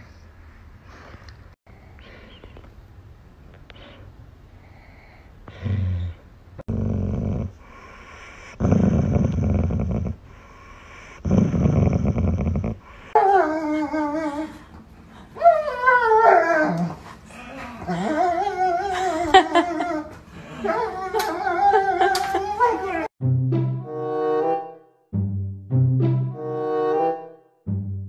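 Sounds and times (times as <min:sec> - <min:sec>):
dog growling low: 0:05.5 - 0:07.6, 0:08.5 - 0:10.2, 0:11.2 - 0:14.5
dog whining and howling: 0:13.1 - 0:14.6, 0:15.4 - 0:23.1.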